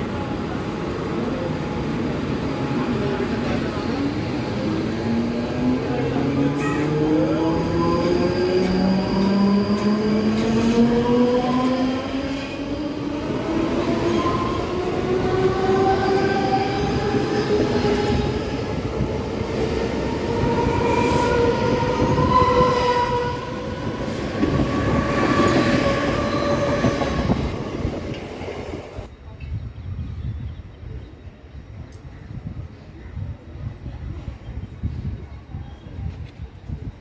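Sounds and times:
train wheels rumbling on rails: 0.0 - 29.6.

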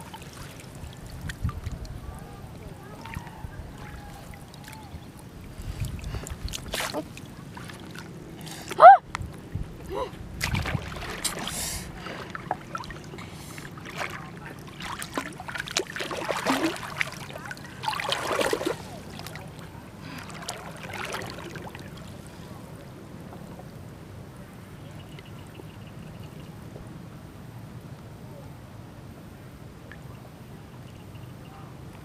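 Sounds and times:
person wading through water: 0.0 - 9.0, 9.7 - 22.6
water lapping: 0.0 - 22.8.

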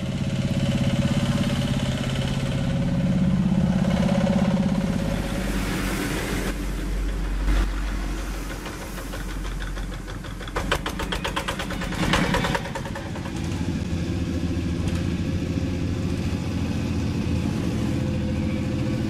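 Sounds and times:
diesel engines running: 0.0 - 19.0
sharp rapid knocking: 8.5 - 13.7.

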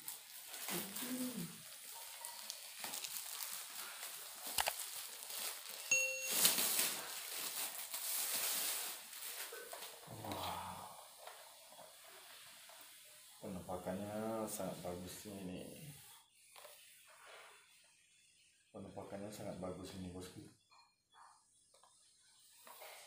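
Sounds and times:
plastic wrapping crinkling: 0.0 - 10.4
short bell-like ding: 5.9 - 6.6.

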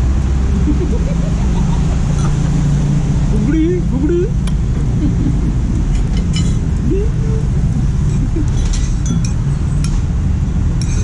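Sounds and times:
street traffic rumble: 0.0 - 11.0
spoons and dishes clinking: 8.5 - 9.5.

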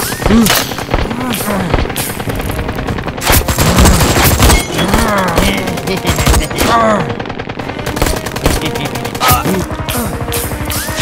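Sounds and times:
music: 0.0 - 11.0
automatic gunfire: 3.2 - 7.1, 7.8 - 9.3.

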